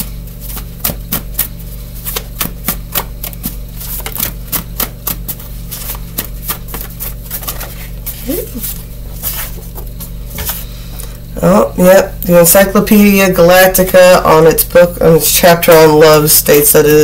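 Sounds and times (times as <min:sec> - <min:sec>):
faint low hum: 0:00.0 - 0:17.0
cards being shuffled: 0:00.3 - 0:10.6.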